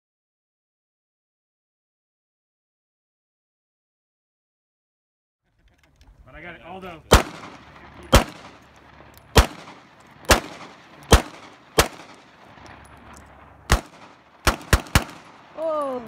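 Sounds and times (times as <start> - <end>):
gunshots with echo: 7.0 - 15.8.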